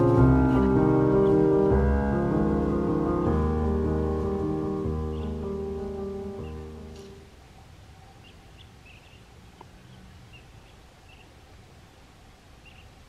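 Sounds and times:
low steady hiss: 0:00.0 - 0:13.0
small birds chirping: 0:04.2 - 0:13.0.

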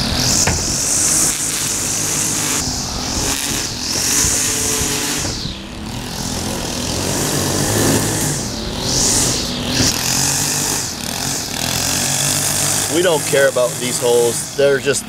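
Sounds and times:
small petrol engines whining: 0:00.0 - 0:15.0.

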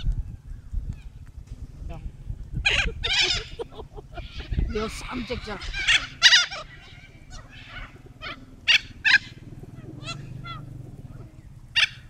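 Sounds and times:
steady low hum: 0:00.2 - 0:12.0
cockatoos screeching: 0:02.6 - 0:12.0.

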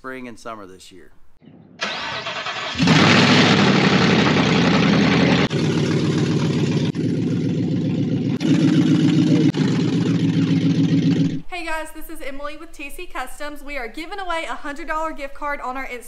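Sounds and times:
loud engine running: 0:01.8 - 0:11.4.

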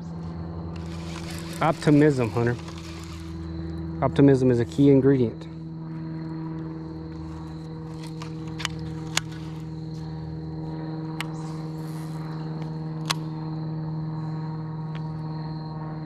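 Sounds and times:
electric motor humming: 0:00.3 - 0:04.1.

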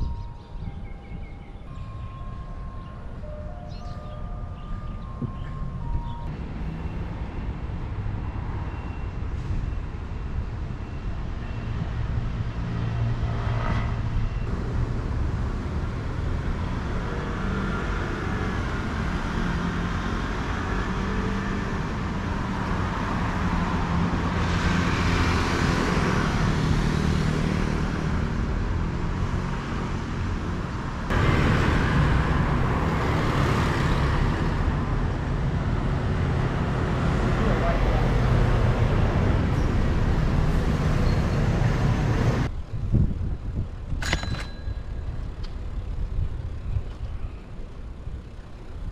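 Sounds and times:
street traffic rumble: 0:00.0 - 0:48.9
vehicle passing: 0:12.4 - 0:42.5.

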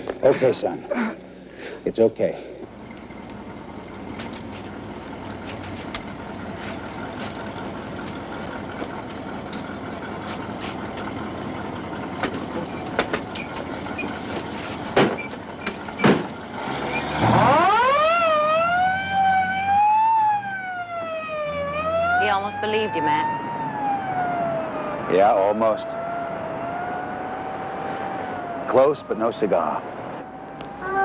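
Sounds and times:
ambulance siren wailing: 0:17.2 - 0:31.0.

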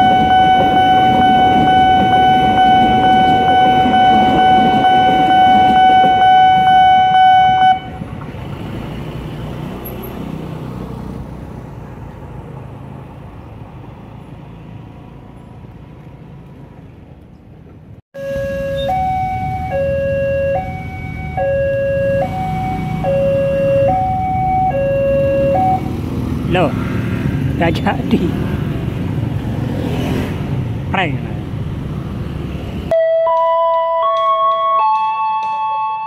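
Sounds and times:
level crossing warning alarm: 0:00.0 - 0:08.0, 0:18.2 - 0:26.0, 0:32.9 - 0:36.0
train passing rumble: 0:00.0 - 0:10.0.

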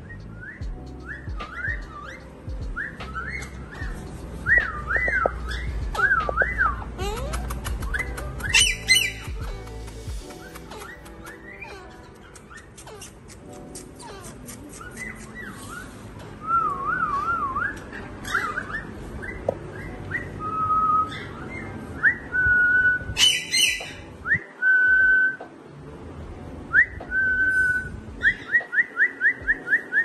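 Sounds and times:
parakeet whistling: 0:00.0 - 0:06.9, 0:07.8 - 0:09.4, 0:14.0 - 0:24.4, 0:26.8 - 0:30.0
parakeet harsh screech: 0:23.2 - 0:24.1.

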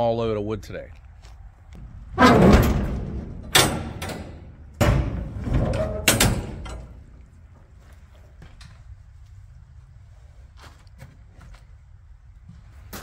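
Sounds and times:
heavy steel doors clanking: 0:01.8 - 0:07.3.

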